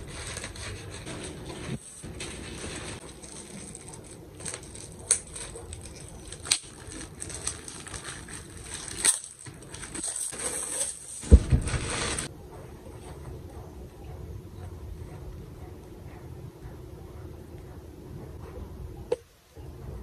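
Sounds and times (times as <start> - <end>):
plastic packaging crinkling: 0.0 - 12.3
sharp plastic crackles: 0.0 - 12.3.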